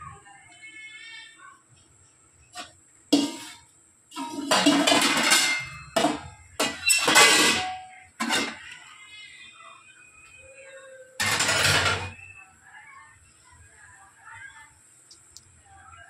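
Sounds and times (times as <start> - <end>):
metal pot knocking and scraping: 2.6 - 8.8, 11.2 - 12.2.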